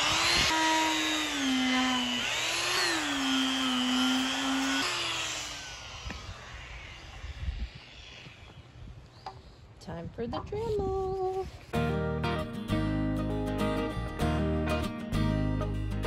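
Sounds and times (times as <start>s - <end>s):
die grinder whining into wood: 0.0s - 9.1s.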